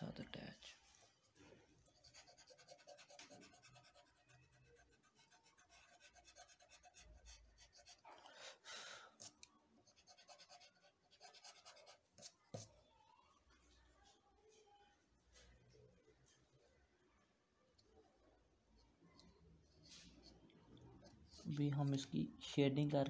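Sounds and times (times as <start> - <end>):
pencil scratching on paper: 1.9 - 8.1, 9.2 - 12.8.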